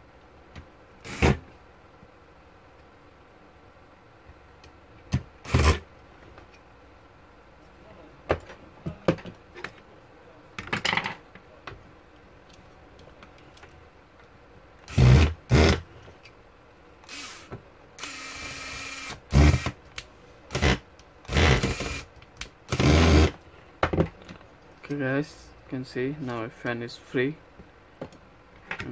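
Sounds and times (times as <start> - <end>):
electric screwdriver running: 17.1 - 19.8, 20.6 - 22.1, 22.7 - 23.3.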